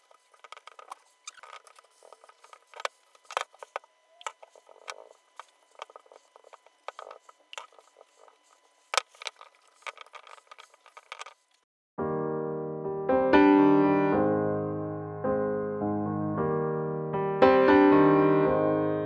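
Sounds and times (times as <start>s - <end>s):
rustling and scratching on plastic: 0.0s - 11.6s
piano music: 12.0s - 19.0s.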